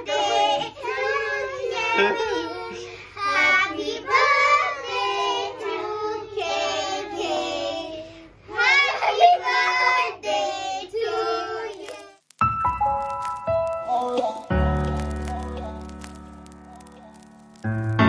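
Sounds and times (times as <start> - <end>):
children singing: 0.0 - 7.9.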